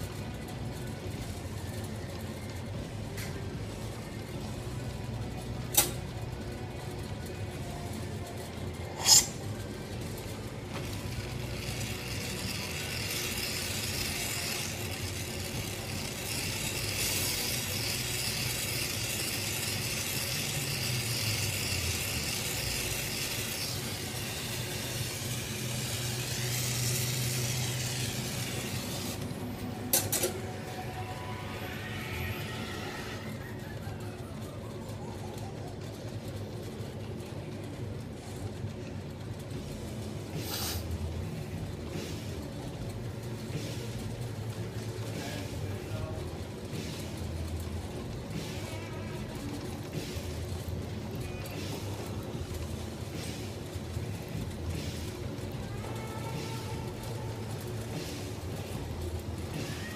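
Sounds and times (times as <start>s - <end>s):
low hum: 0.0s - 59.9s
torch flame hissing: 8.8s - 33.7s, 39.6s - 59.9s.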